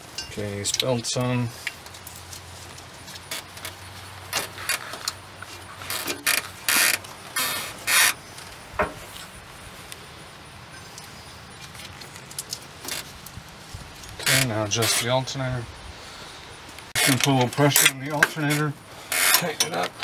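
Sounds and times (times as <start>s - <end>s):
belts scraping on pulleys: 17.0s - 20.0s.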